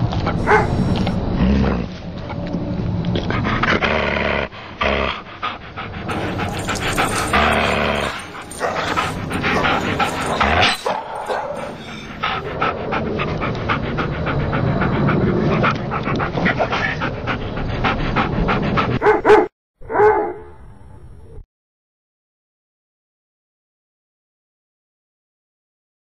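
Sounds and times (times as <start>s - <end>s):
dogs panting: 0.0s - 1.2s, 4.4s - 19.5s
dogs vocalizing excitedly: 0.0s - 1.2s, 5.0s - 19.5s.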